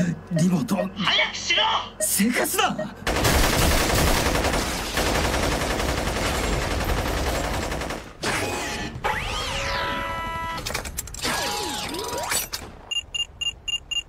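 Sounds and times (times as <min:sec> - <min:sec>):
automatic gunfire: 0:03.1 - 0:08.1.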